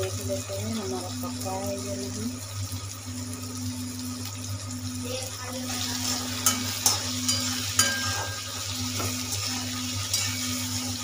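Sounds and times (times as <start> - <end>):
tomatoes sizzling in hot oil: 0.0 - 11.0
metal spatula scraping pan: 5.7 - 11.0.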